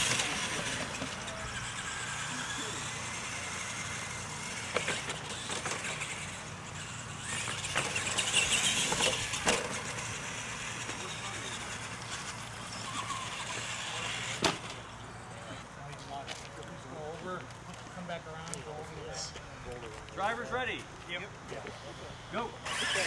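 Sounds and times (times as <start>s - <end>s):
toy truck motors whirring: 0.0s - 15.8s, 21.8s - 23.0s.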